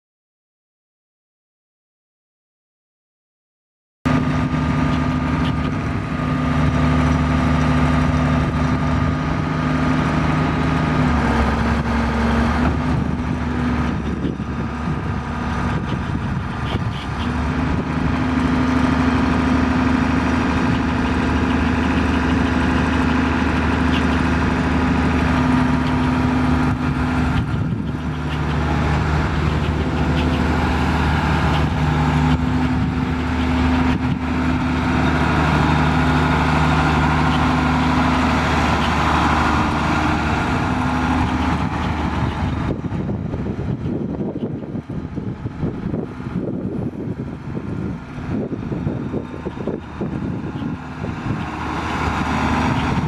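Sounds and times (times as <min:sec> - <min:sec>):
diesel engine running: 0:04.1 - 0:53.0.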